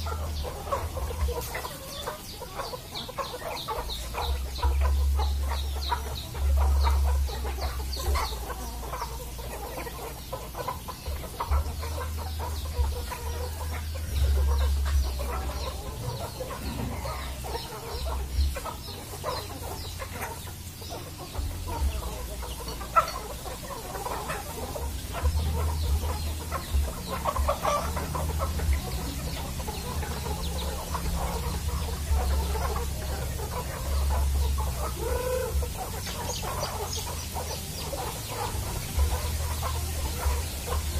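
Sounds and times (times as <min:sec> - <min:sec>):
chickens clucking: 0:00.0 - 0:40.9.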